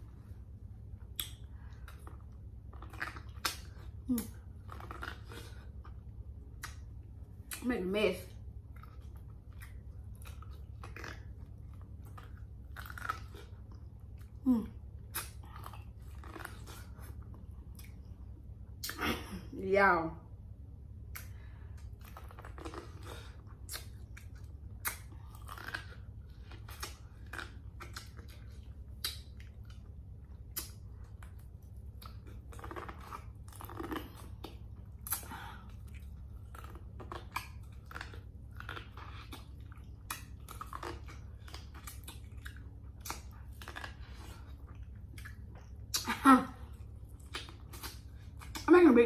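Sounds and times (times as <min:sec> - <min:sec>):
chewing corn on the cob: 0:00.0 - 0:19.0, 0:21.0 - 0:49.0
wet mouth sounds: 0:08.9 - 0:18.1, 0:21.1 - 0:29.8, 0:32.0 - 0:48.7.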